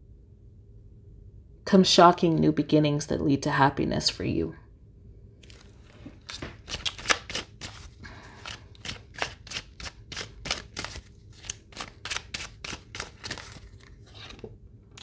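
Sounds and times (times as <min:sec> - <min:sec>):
cards being shuffled: 0:05.4 - 0:15.0.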